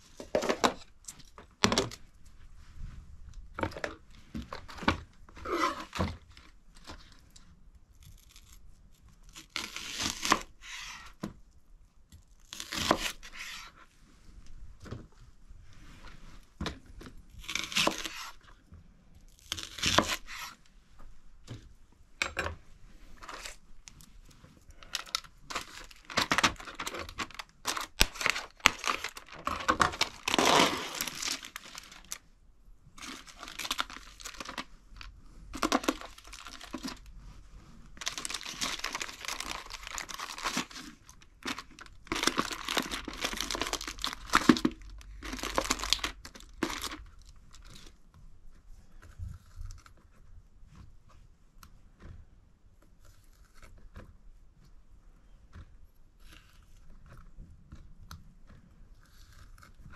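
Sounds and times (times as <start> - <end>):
wrapping crumpling and tearing: 3.9 - 11.2, 12.3 - 13.8, 17.2 - 18.6, 19.2 - 20.6, 23.2 - 32.3, 33.0 - 48.0.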